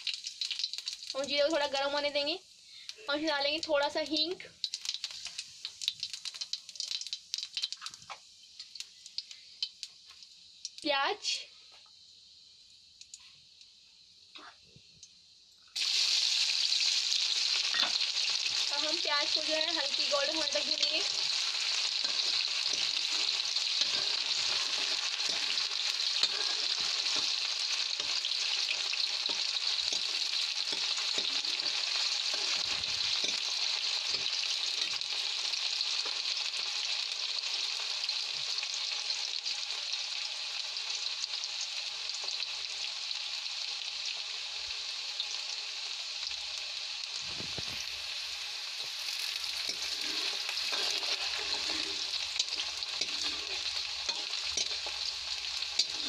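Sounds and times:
onions sizzling in hot oil: 0:00.0 - 0:56.0
steel ladle scraping a pan: 0:17.7 - 0:18.1, 0:20.2 - 0:35.1, 0:49.0 - 0:56.0.

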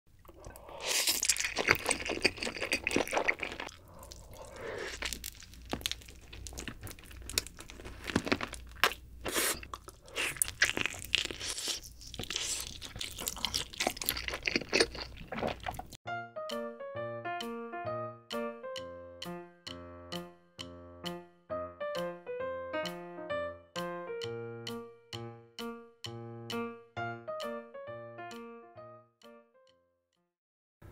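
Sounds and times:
slurping noodles: 0:00.2 - 0:05.2, 0:09.2 - 0:16.0
chewing with wet smacks: 0:01.1 - 0:09.0, 0:09.6 - 0:16.0
keyboard tune: 0:16.0 - 0:30.0.

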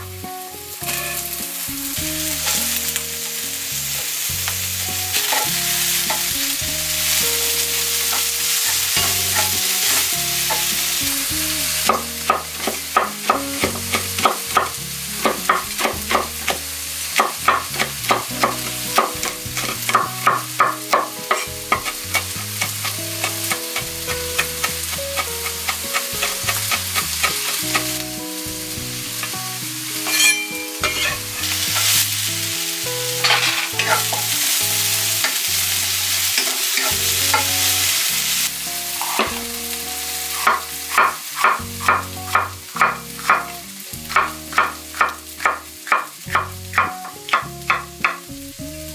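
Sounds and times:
onions sizzling in a pan: 0:00.0 - 0:48.9
spatula stirring in a pan: 0:07.1 - 0:11.2, 0:11.9 - 0:28.0, 0:30.0 - 0:32.1, 0:33.2 - 0:39.4
knife chopping on wooden board: 0:44.1 - 0:47.8.

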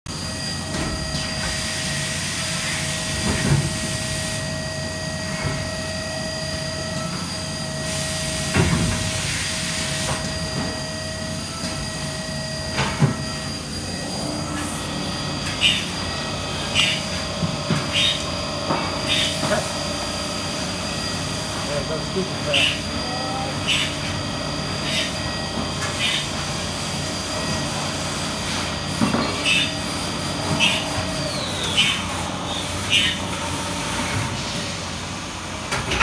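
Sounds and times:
machine drone with thin whine: 0:00.1 - 0:36.0
tool cutting metal: 0:12.7 - 0:19.8, 0:21.6 - 0:26.5, 0:28.5 - 0:34.2.

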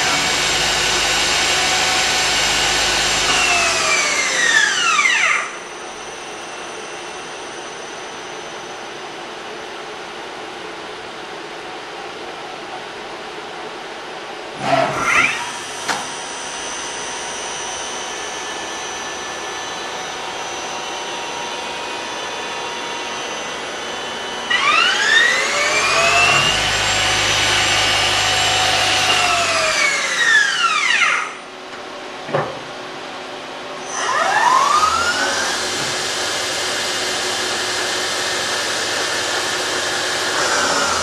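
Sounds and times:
motor whine: 0:00.0 - 0:08.8, 0:15.1 - 0:31.4, 0:33.8 - 0:41.0
lathe mechanical hum: 0:00.0 - 0:41.0.

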